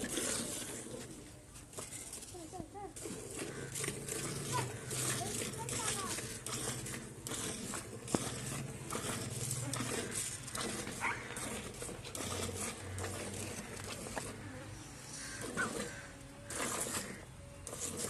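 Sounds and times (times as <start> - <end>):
milk squirting into steel bucket: 2.9 - 14.5, 15.2 - 18.0.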